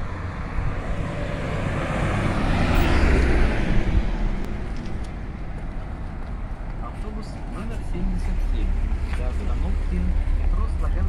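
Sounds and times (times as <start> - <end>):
traffic rumble and tyre hiss: 0.0 - 11.0
vehicle passing by: 0.0 - 11.0.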